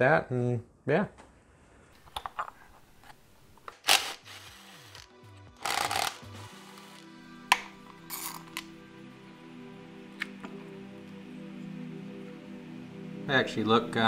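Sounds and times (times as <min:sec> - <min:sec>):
background music: 0:02.0 - 0:14.0
cordless drill running: 0:03.7 - 0:07.0.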